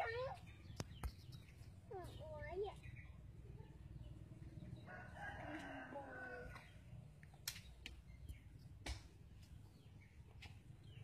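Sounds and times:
rooster crowing: 4.9s - 6.6s.

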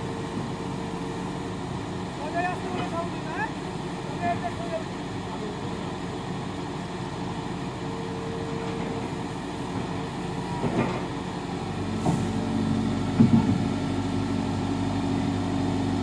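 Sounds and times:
excavator diesel engine under load: 0.0s - 16.0s
tracks knocking on trailer: 13.1s - 13.8s.

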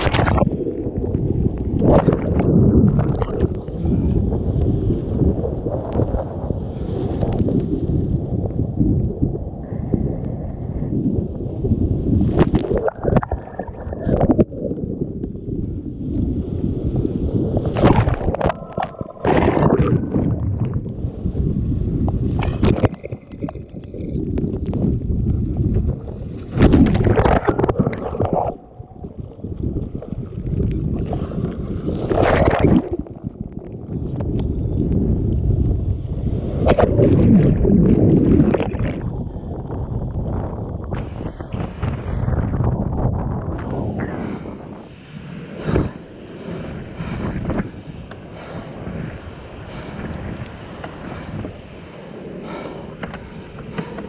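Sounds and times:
wind and water rumble on microphone: 0.0s - 54.0s
surf breaking over kayak: 17.5s - 20.7s, 31.0s - 33.0s.

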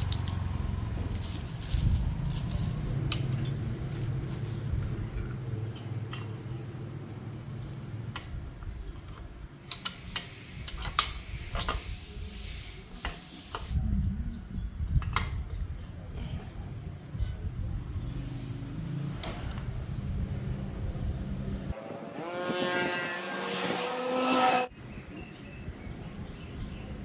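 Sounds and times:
small metal parts clicking: 0.0s - 4.0s.

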